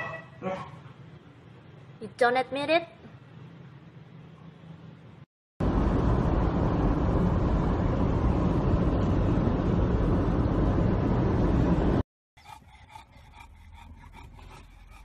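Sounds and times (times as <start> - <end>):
road and engine rumble in car: 5.6 - 12.0.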